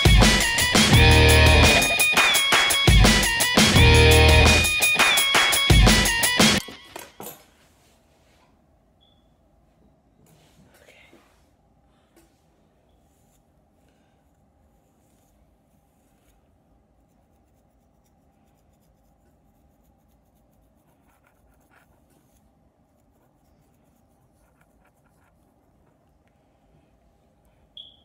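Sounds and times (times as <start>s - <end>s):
low room hum: 6.6s - 28.0s
comb scratching through hair: 14.6s - 25.6s.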